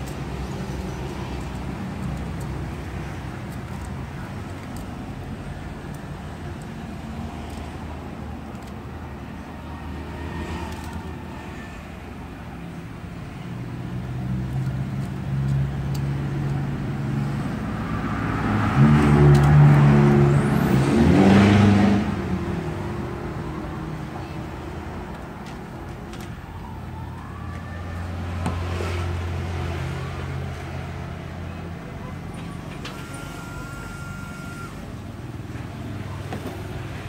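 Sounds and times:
vehicle engine passing by: 13.5 - 24.1, 27.2 - 33.5.

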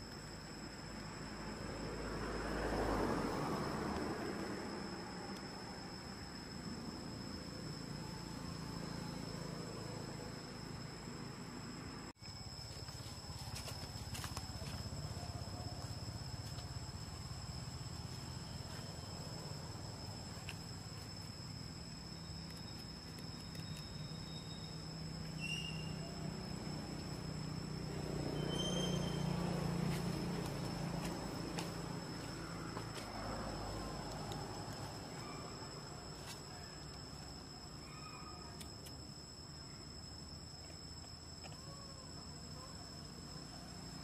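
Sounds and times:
insects droning: 0.0 - 44.0.

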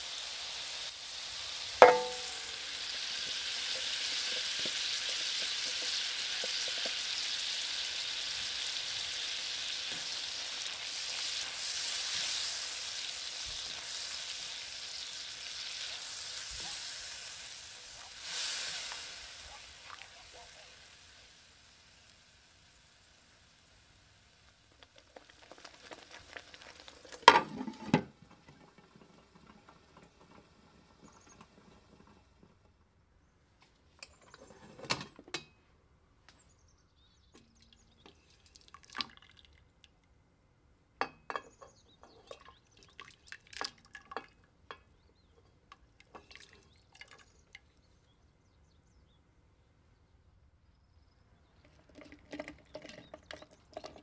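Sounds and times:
sauce sizzling in a pan: 0.0 - 27.9
clinks drips and splashes: 37.4 - 40.0, 41.0 - 47.9, 51.6 - 54.0.

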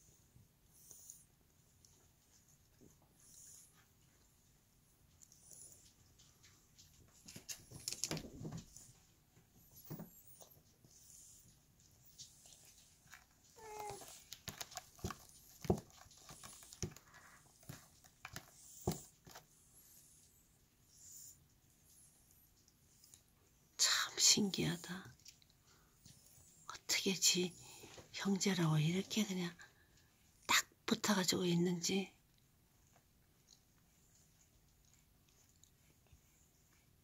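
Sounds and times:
soft rustle: 0.0 - 30.5, 31.1 - 37.0.

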